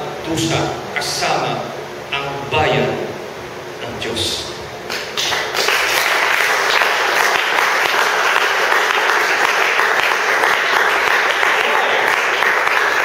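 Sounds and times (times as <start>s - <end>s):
congregation applauding: 4.9s - 13.0s.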